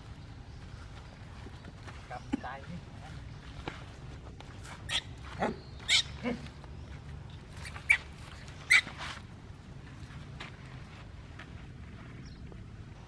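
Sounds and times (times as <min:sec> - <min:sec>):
macaques calling: 0:04.7 - 0:06.6, 0:07.5 - 0:09.0.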